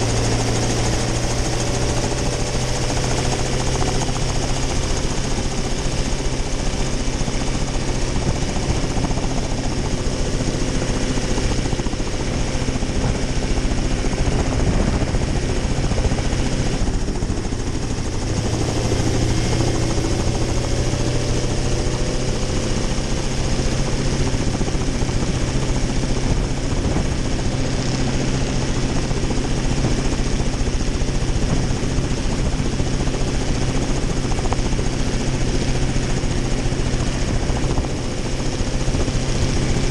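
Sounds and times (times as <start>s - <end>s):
helicopter engine and rotor: 0.0s - 39.9s.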